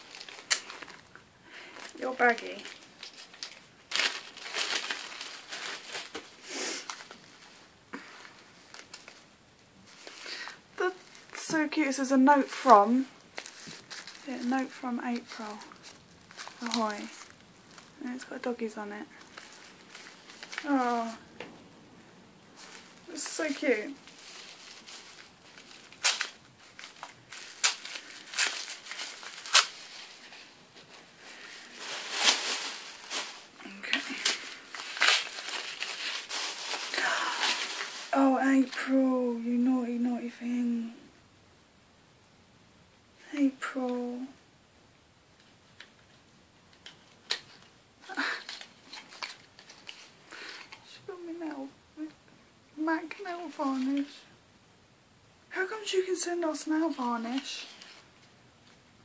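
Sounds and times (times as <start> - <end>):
gift wrapping crackling and tearing: 0.0 - 9.3, 9.9 - 11.8, 12.4 - 21.3, 22.5 - 39.0, 46.7 - 50.9, 53.1 - 54.2
packaging rustling and crinkling: 0.0 - 11.8, 12.4 - 21.4, 22.5 - 38.9, 45.4 - 50.9, 57.2 - 58.8
soft rush of noise: 0.0 - 59.0.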